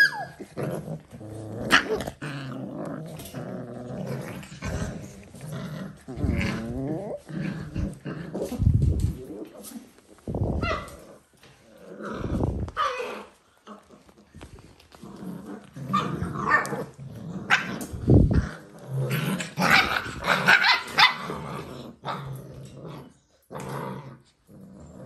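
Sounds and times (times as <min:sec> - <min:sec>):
puppy yaps and whines: 0:00.0 - 0:00.5
puppies play-growling: 0:00.0 - 0:25.0.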